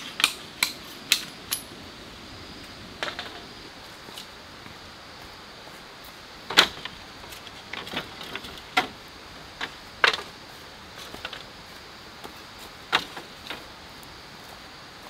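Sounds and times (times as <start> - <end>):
bamboo slats clacking: 0.0 - 1.8, 3.0 - 3.5, 6.5 - 10.4, 12.9 - 13.7.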